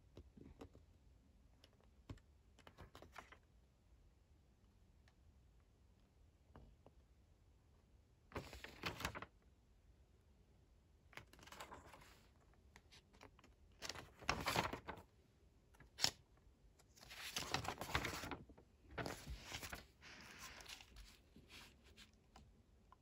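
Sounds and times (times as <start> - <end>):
pages turning: 8.3 - 9.3, 11.2 - 15.1, 15.8 - 16.2, 16.9 - 22.5.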